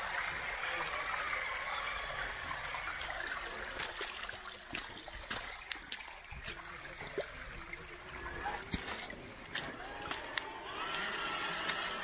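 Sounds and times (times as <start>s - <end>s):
creek water trickling: 0.0s - 12.0s
small splashes and ticks: 2.9s - 12.0s.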